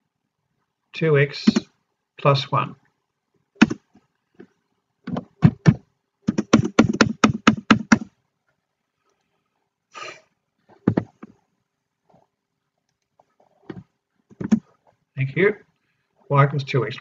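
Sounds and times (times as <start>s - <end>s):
sharp knocks: 3.6s - 3.8s, 5.1s - 8.1s, 10.8s - 11.3s, 14.4s - 14.6s.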